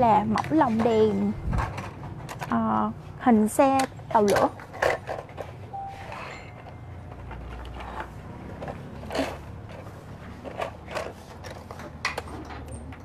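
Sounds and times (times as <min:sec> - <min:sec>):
plastic toy clicks and knocks: 0:00.1 - 0:02.8, 0:03.6 - 0:05.6.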